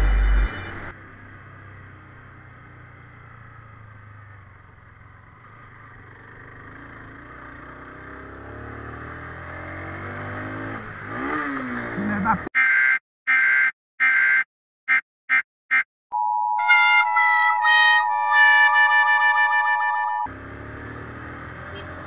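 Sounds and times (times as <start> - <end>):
music jingle: 16.1 - 20.3.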